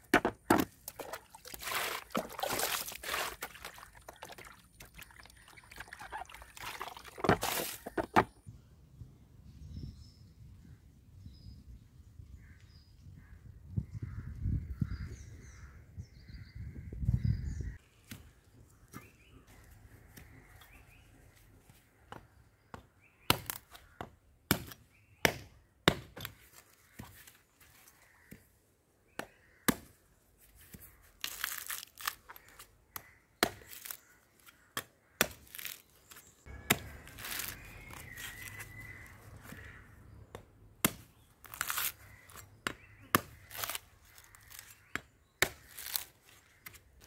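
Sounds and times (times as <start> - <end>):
machete chopping coconut husk: 7.2 - 8.3, 22.7 - 23.8, 24.5 - 26.4, 33.4 - 34.0, 34.8 - 35.8, 36.5 - 38.8, 40.3 - 43.8, 44.4 - 46.8
husk strips ripping: 31.2 - 32.7, 35.4 - 36.2, 36.8 - 39.0, 41.4 - 42.5, 43.4 - 44.8, 45.6 - 46.6.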